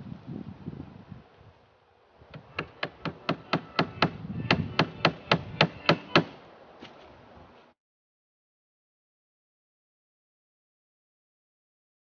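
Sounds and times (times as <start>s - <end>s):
hammer blows on staples: 2.3s - 6.4s.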